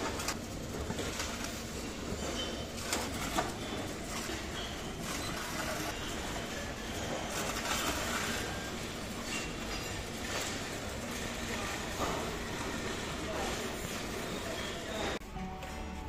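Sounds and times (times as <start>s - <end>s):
printer whirring: 0.0s - 16.0s
supermarket background hum: 0.0s - 16.0s.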